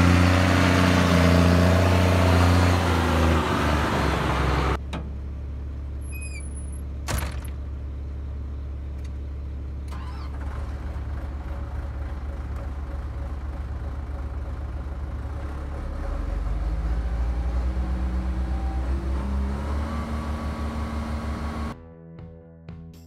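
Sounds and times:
excavator diesel engine: 0:00.0 - 0:21.8
music: 0:21.8 - 0:23.0.

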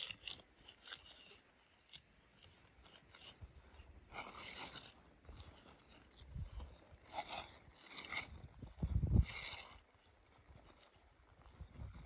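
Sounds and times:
nylon rustling and crinkling: 0:00.0 - 0:12.0.

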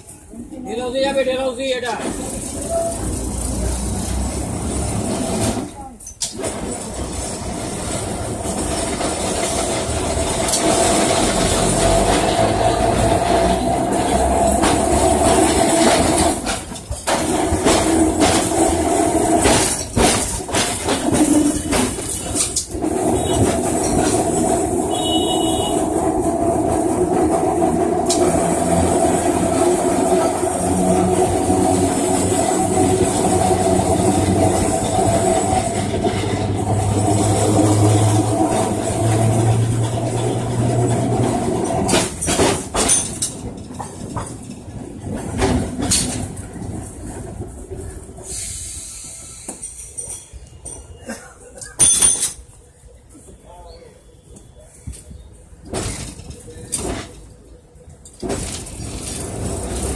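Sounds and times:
tram wheels rumbling and rattling: 0:00.0 - 0:59.9
knocks over the track: 0:14.0 - 0:24.8, 0:35.8 - 0:44.5.

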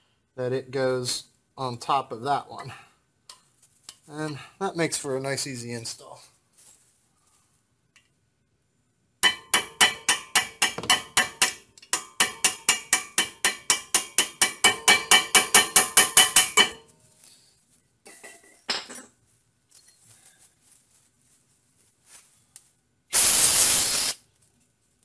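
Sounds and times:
hammer tapping metal punch: 0:09.2 - 0:16.8.

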